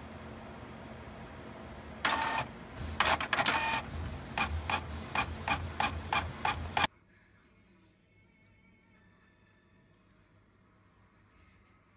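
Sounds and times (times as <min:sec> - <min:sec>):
printer mechanical strokes: 0:02.0 - 0:06.9
printer paper feed whir: 0:02.0 - 0:06.9.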